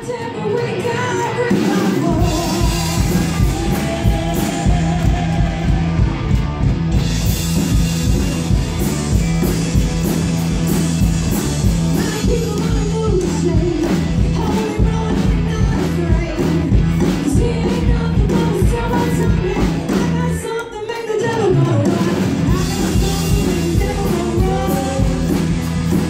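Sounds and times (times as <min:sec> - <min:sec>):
woman singing: 0:00.0 - 0:05.8, 0:11.9 - 0:25.5
drum kit: 0:00.0 - 0:26.0
electric guitars: 0:00.0 - 0:26.0.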